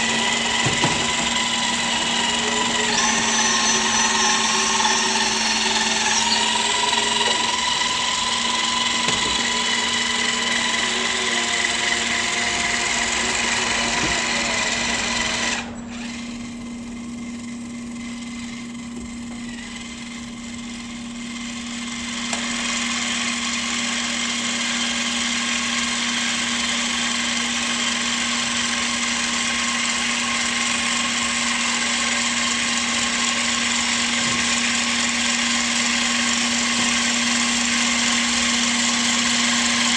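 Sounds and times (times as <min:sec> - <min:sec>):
model excavator motors whining: 0:00.0 - 0:39.9.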